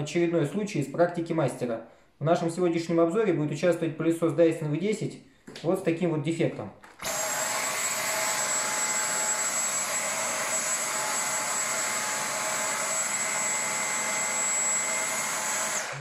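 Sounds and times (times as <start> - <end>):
vacuum cleaner motor whining: 7.0 - 16.0.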